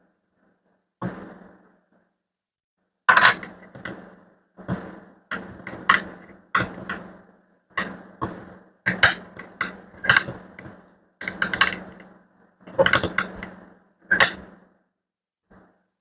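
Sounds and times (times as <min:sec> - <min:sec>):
clicks and clatter of handled parts: 0:03.1 - 0:04.0, 0:08.9 - 0:12.1, 0:12.7 - 0:14.5.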